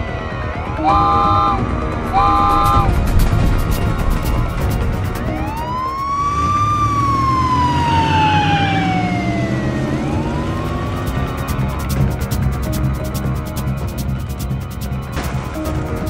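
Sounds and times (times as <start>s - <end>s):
background music: 0.0s - 16.0s
siren wailing: 0.6s - 2.9s, 5.2s - 11.7s.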